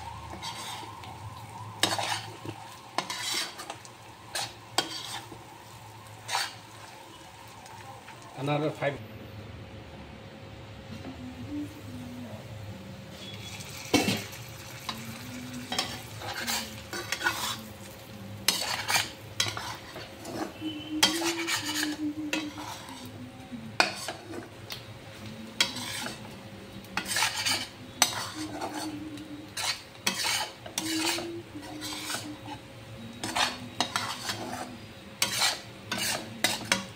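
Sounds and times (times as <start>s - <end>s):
meat sizzling in a frying pan: 0.0s - 9.0s, 13.3s - 20.4s
spatula scraping a pan: 0.1s - 7.6s, 13.1s - 24.5s, 25.4s - 36.9s.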